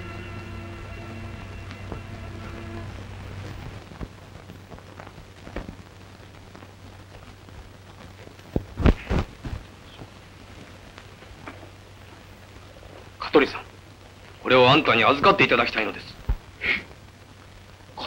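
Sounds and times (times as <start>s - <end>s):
film score note: 0.0s - 3.9s
old soundtrack hum and crackle: 0.0s - 18.0s.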